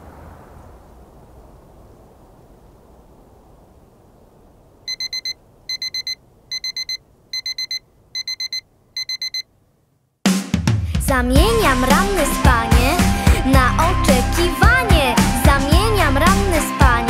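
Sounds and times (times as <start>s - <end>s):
alarm clock beeping: 4.9s - 9.5s
loud music: 11.4s - 17.0s.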